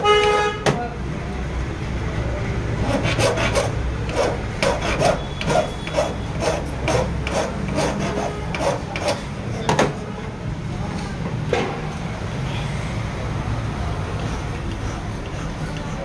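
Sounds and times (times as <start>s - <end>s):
hand file rasping on metal: 2.8s - 9.3s, 14.2s - 16.0s.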